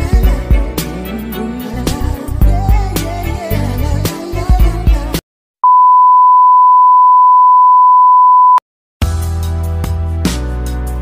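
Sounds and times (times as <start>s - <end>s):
background music: 0.0s - 5.2s, 9.0s - 11.0s
test tone beep: 5.6s - 8.6s.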